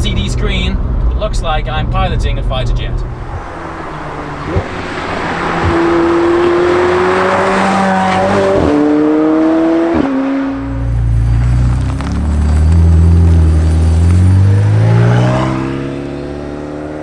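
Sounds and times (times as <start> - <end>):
tyre and road noise: 0.0 - 17.0
sports car accelerating past: 3.0 - 17.0
gear change cracks: 11.3 - 14.4.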